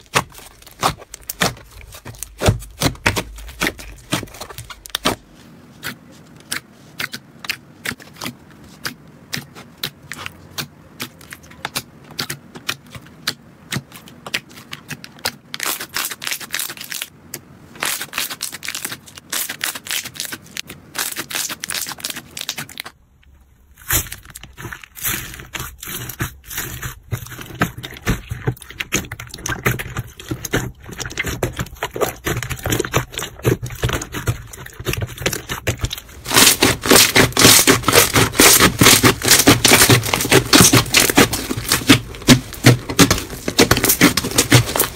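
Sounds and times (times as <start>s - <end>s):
slime crackling and popping: 23.8s - 44.9s.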